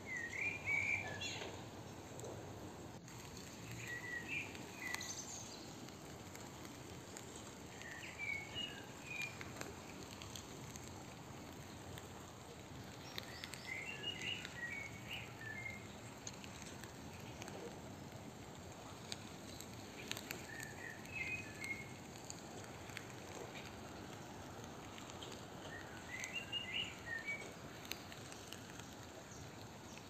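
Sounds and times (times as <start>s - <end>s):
bird chirping: 0.0s - 1.6s, 3.4s - 5.8s, 7.7s - 9.5s, 12.9s - 18.1s, 19.5s - 22.0s, 24.0s - 30.0s
outdoor background noise: 0.0s - 30.0s.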